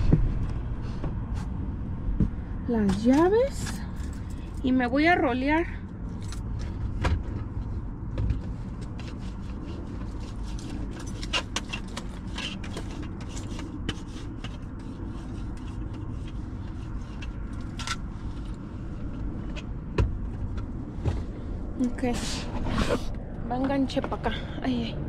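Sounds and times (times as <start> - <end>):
steady low rumble: 0.0 - 11.2, 11.9 - 25.0
clicks knocks and scrapes: 8.1 - 21.4.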